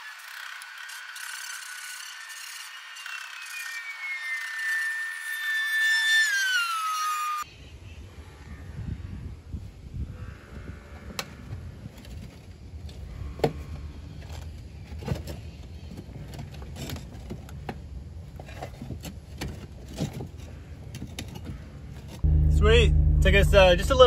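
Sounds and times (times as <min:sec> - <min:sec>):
low rumble: 0:22.2 - 0:24.0.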